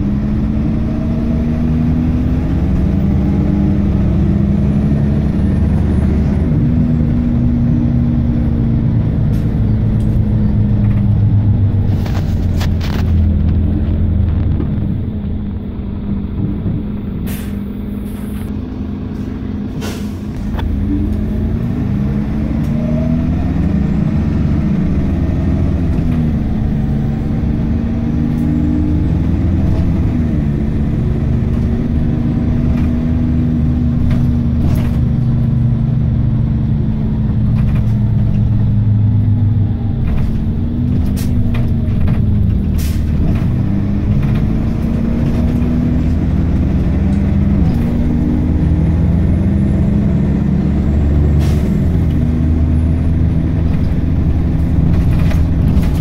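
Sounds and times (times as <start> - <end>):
bus diesel engine under load: 0.0 - 56.0
bus body clicks and knocks: 16.1 - 17.3, 31.3 - 35.8, 36.9 - 38.9, 40.0 - 48.2, 53.3 - 56.0.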